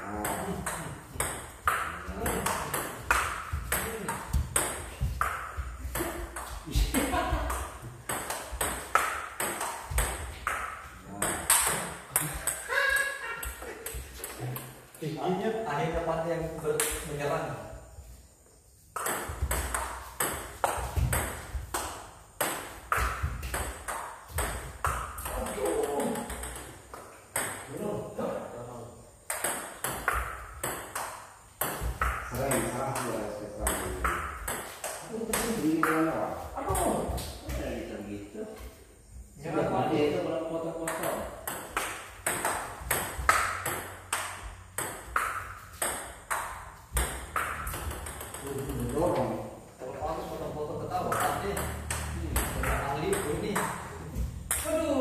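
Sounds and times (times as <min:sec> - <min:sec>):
table tennis ball hitting bats: 0:00.0 - 0:12.7, 0:13.3 - 0:15.0, 0:16.6 - 0:17.2, 0:18.9 - 0:27.8, 0:29.2 - 0:37.6, 0:40.8 - 0:49.8, 0:50.8 - 0:55.0
ball bouncing on table: 0:00.1 - 0:12.6, 0:16.7 - 0:17.1, 0:19.0 - 0:27.7, 0:29.3 - 0:37.6, 0:40.8 - 0:49.4, 0:51.0 - 0:54.7.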